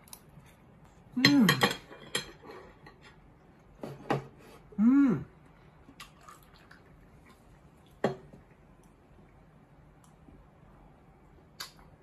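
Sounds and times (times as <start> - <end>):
man humming with enjoyment: 4.8 - 5.3.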